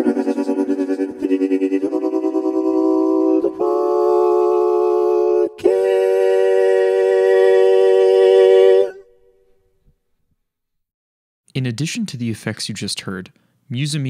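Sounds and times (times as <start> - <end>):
harmonized singing voice chords: 0.0 - 9.2.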